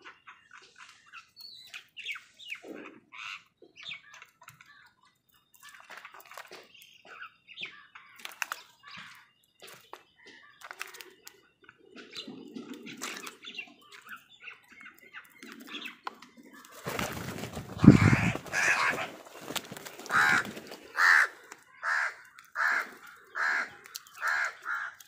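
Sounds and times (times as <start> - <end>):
crows cawing: 17.0 - 25.0.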